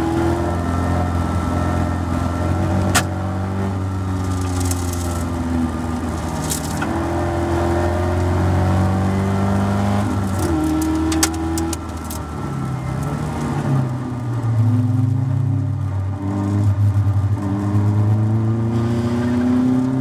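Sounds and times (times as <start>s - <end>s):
race car engine revving: 14.6s - 20.0s.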